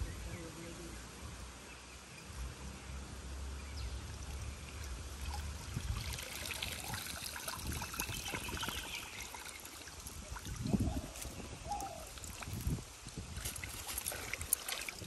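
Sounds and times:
water splashing off net: 13.4 - 15.0.

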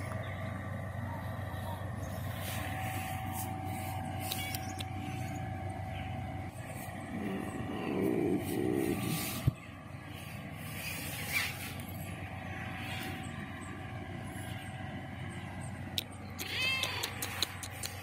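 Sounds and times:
steady low hum: 0.0 - 18.0
cat meowing: 16.4 - 17.2.

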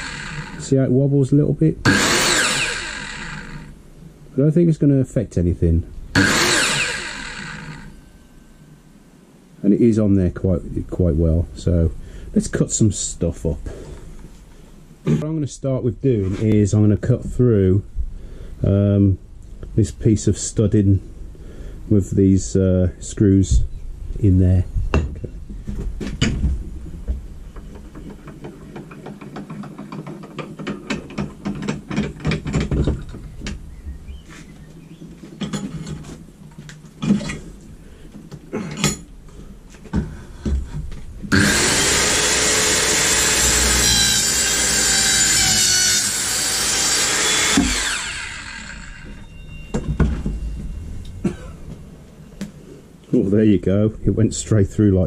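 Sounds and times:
saw motor spinning down: 0.0 - 0.7, 1.8 - 3.8, 6.2 - 8.0, 41.3 - 49.3
circular saw cutting timber: 0.0 - 0.8, 1.8 - 3.8, 6.2 - 8.0, 41.3 - 49.3
handling knocks and clicks: 25.1 - 33.6.

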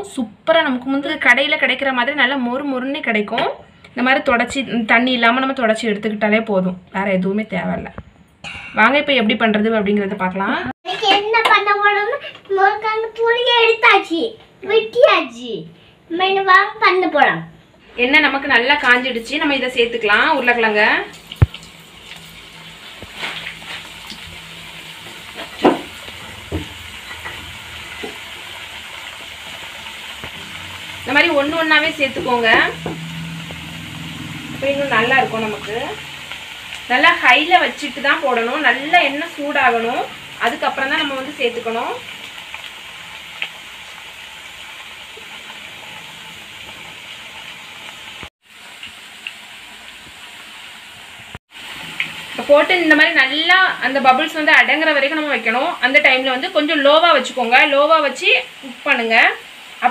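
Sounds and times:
potato slices sizzling in oil: 17.9 - 59.9.

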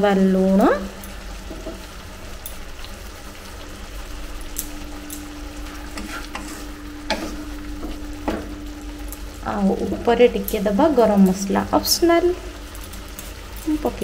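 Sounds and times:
faint steady hum: 0.0 - 14.0
gravy sizzling in a pan: 0.0 - 14.0
spatula scraping a pan: 5.8 - 8.0.

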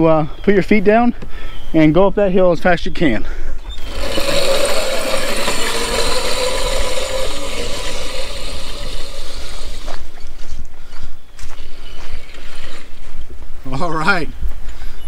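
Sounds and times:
drivetrain rattle: 3.7 - 10.1
electric motor whine: 3.7 - 10.2.

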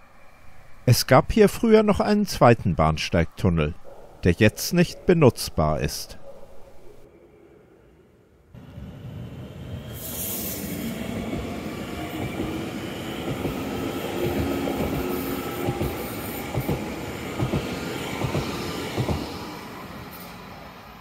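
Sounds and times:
faint train whine: 7.0 - 21.0
train rumbling past: 7.1 - 21.0.

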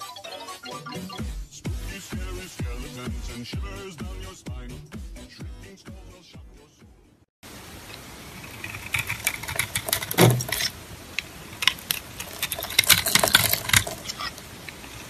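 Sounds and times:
knife scraping soap: 8.5 - 10.8, 11.6 - 15.0.

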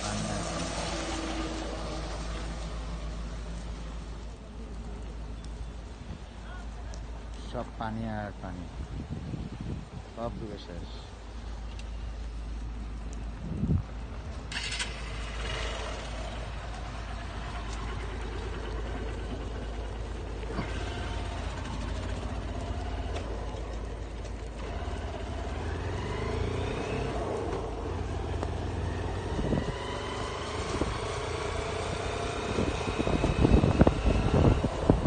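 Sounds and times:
wind buffeting microphone: 8.2 - 10.6, 12.8 - 35.0
vehicle engine running: 14.6 - 35.0.

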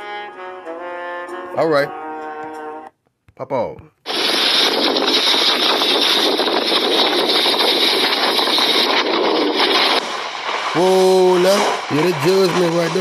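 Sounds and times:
wind blowing across microphone: 4.1 - 13.0.

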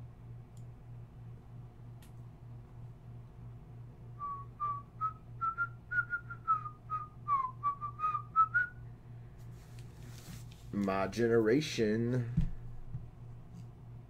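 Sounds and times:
man whistling a tune: 4.2 - 8.8.

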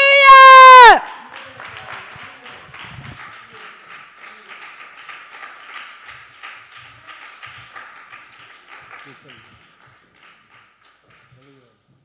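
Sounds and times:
faint scattered clapping: 0.8 - 12.0.

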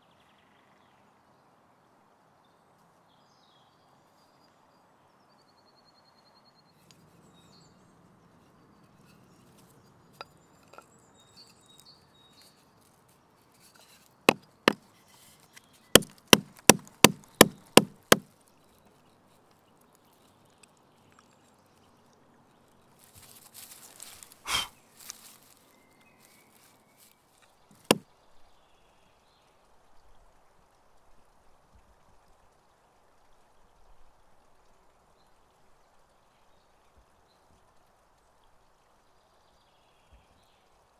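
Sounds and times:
rustling scrape: 10.6 - 14.2, 23.0 - 24.4
sharp wooden knocks: 14.3 - 14.8, 16.0 - 18.3, 27.7 - 28.0.

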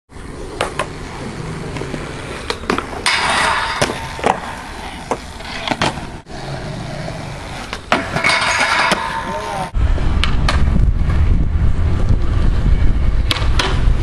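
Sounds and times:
skateboard wheels rolling on concrete: 0.1 - 14.0
skateboard clacking on ground: 0.5 - 6.2, 7.4 - 10.7.

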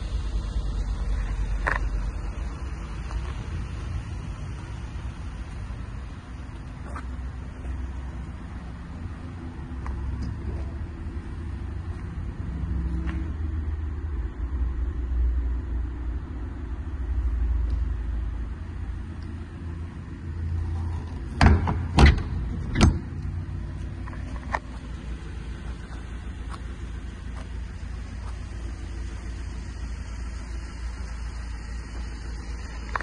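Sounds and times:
low rumble: 0.0 - 33.0
van doors banging shut: 21.2 - 23.2
latch clicks: 21.4 - 23.3.

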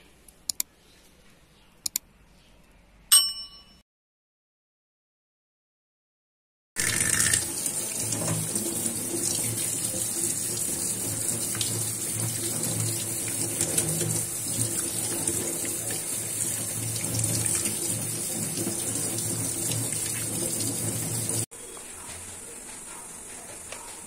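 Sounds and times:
tap water splashing into sink: 6.8 - 21.5.

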